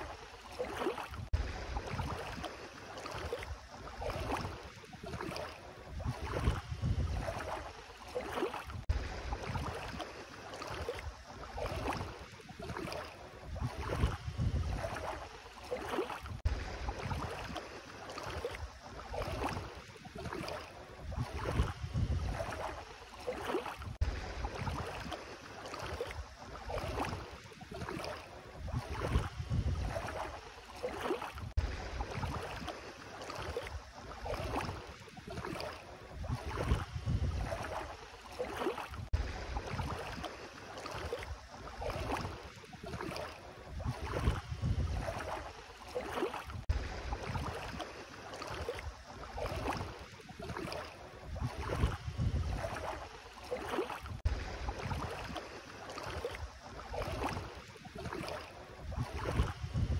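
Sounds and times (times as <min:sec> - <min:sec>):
feet splashing in water: 0:00.0 - 0:59.9
wind rumble on microphone: 0:01.1 - 0:02.4, 0:03.3 - 0:07.7, 0:08.6 - 0:10.0, 0:11.0 - 0:15.3, 0:16.2 - 0:17.6, 0:20.3 - 0:22.8, 0:23.8 - 0:25.1, 0:28.4 - 0:30.4, 0:31.3 - 0:32.7, 0:33.7 - 0:38.0, 0:38.9 - 0:40.2, 0:41.3 - 0:45.5, 0:46.4 - 0:47.8, 0:48.8 - 0:53.1, 0:54.0 - 0:55.4, 0:56.4 - 0:59.9.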